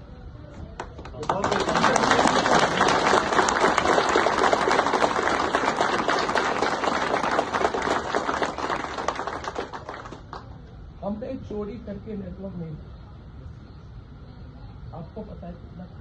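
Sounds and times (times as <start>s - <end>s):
crowd applauding: 1.0s - 10.6s.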